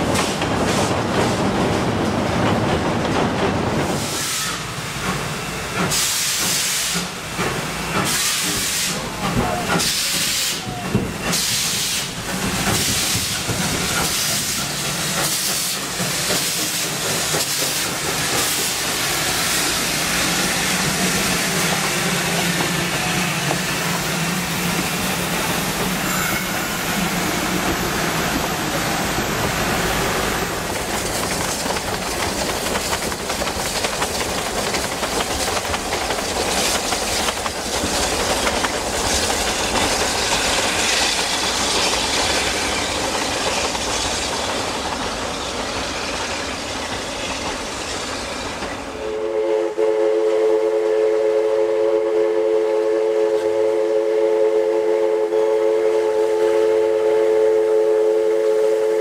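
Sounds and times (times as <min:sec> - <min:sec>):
train rushing along rails: 0:00.0 - 0:59.0
wheel clatter over rail joints: 0:30.5 - 0:49.0.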